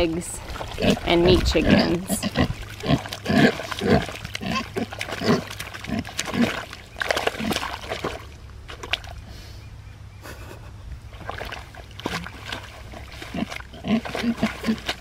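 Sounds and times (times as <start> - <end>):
pigs grunting: 0.0 - 8.2, 11.2 - 15.0
mud sloshing and squelching: 0.0 - 9.3, 11.1 - 15.0.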